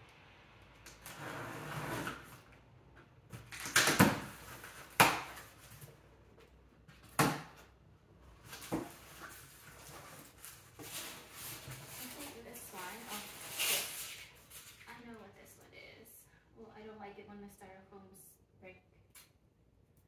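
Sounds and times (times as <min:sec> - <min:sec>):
cardboard rustling: 0:08.4 - 0:14.9.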